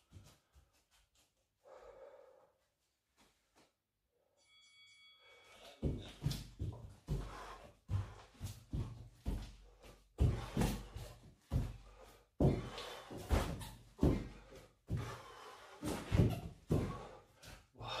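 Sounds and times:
dull thuds on tiled floor: 12.4 - 15.1.

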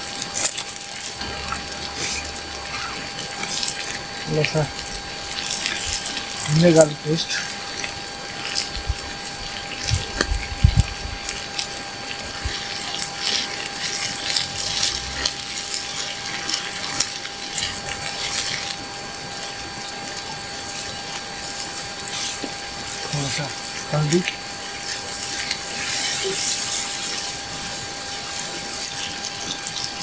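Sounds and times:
chicken sizzling in hot oil: 0.0 - 30.0
wooden spatula scraping skillet: 24.1 - 29.1.

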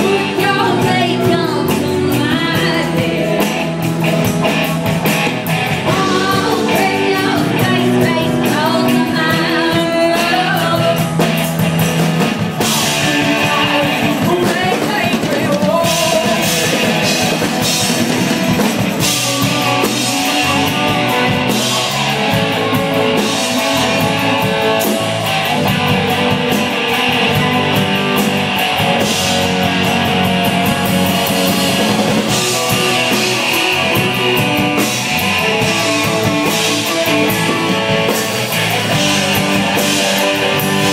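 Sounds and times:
person singing: 0.0 - 3.8, 5.8 - 11.4, 12.6 - 17.8
drum kit: 0.0 - 40.9
electric guitar: 0.0 - 40.9.

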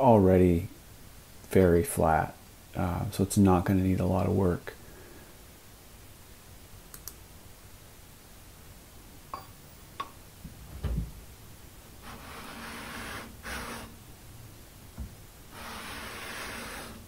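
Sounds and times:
dull thump: 10.4 - 11.2
wood sliding on sandpaper: 12.0 - 14.0, 15.5 - 17.0.

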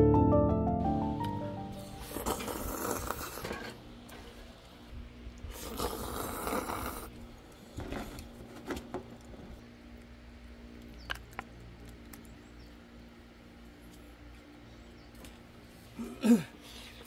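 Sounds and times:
noodles slurped: 2.0 - 3.6, 5.4 - 7.6.

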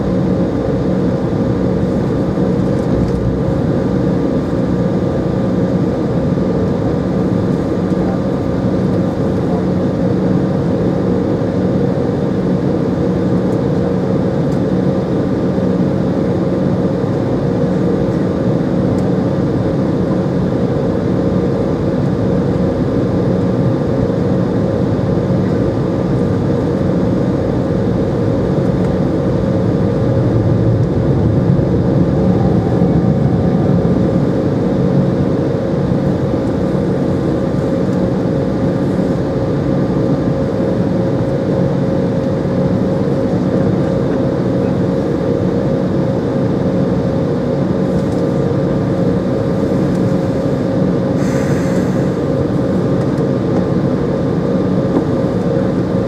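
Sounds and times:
jet engines humming: 0.0 - 56.0.

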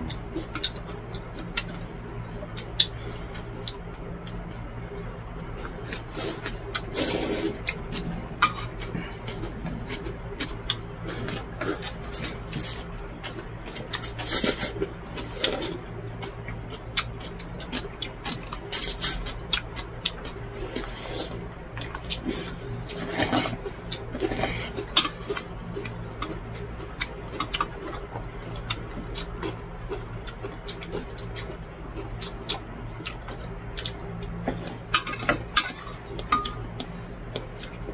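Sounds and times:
steady low hum: 0.0 - 37.9
person slurping noodles: 6.1 - 7.6, 14.0 - 15.8, 22.2 - 25.3.

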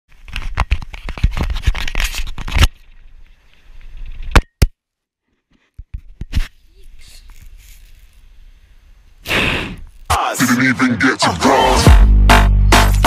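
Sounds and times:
hands rubbing camera housing: 0.2 - 2.8, 5.4 - 8.3.

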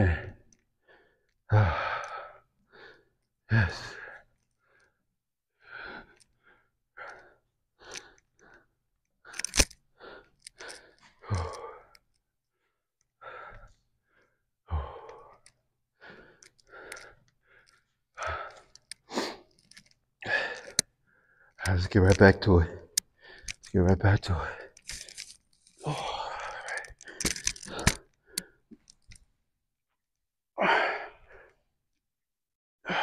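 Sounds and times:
man breathing hard: 0.0 - 5.0, 5.6 - 12.0, 12.6 - 21.6, 22.8 - 29.2
man groaning: 3.5 - 4.0, 25.8 - 26.5.

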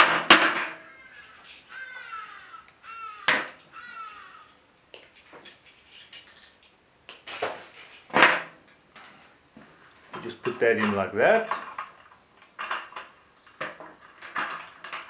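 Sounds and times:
bird calling short falling notes: 0.8 - 4.6.

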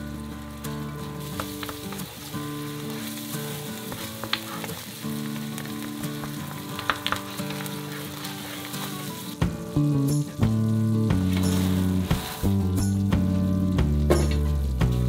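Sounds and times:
background music: 0.0 - 15.0
sauce bubbling and sizzling in a pan: 0.0 - 15.0
wooden spoon clicking against pan: 5.6 - 7.7.

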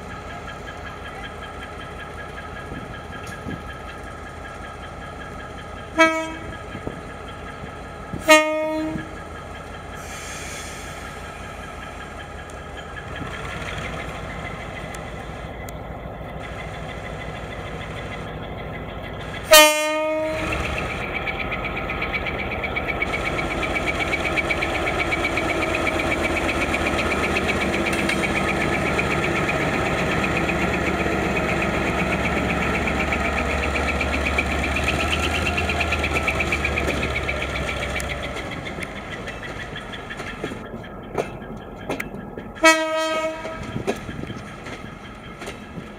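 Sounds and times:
locomotive horn blasts: 6.0 - 6.5, 8.2 - 9.1, 19.5 - 20.5, 42.6 - 43.7
diesel engine throttling up: 9.2 - 19.5, 20.4 - 41.8.

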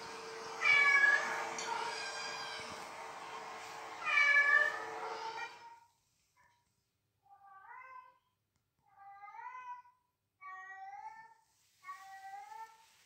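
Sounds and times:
cat meowing: 0.6 - 2.8.

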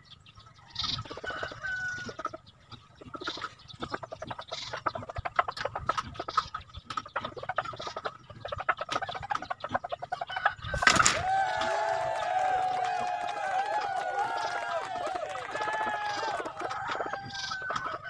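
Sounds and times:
chicken clucking: 0.2 - 11.1, 15.6 - 18.0
trap dropping with a clatter: 10.8 - 11.2.

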